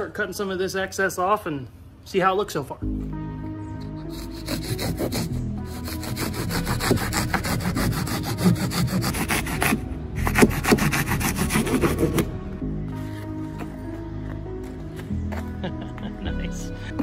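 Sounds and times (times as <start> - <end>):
music: 2.2 - 17.0
hand saw cutting foam: 4.1 - 12.3.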